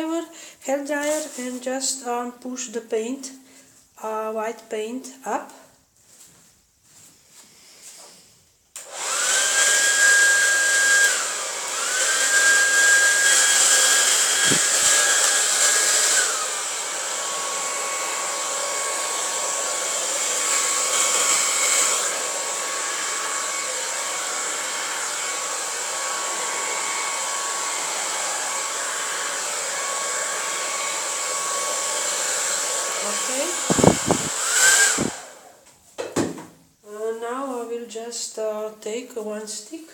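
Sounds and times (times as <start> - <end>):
hair dryer blowing: 8.8 - 35.6.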